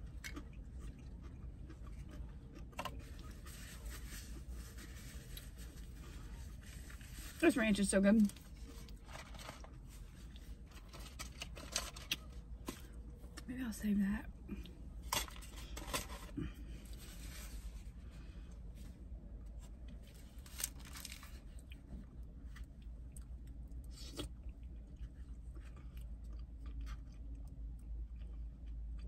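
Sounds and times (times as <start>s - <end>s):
person chewing: 0.0s - 7.1s, 20.6s - 29.0s
low steady hum: 0.0s - 29.0s.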